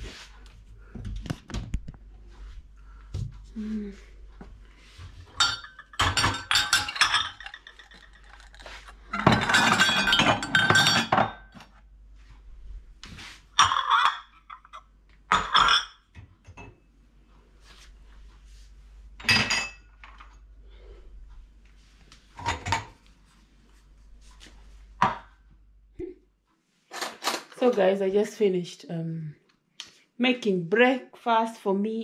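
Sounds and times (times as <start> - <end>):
dishes and cutlery clattering: 5.2 - 11.7, 13.6 - 16.8, 19.2 - 20.4, 22.3 - 23.0.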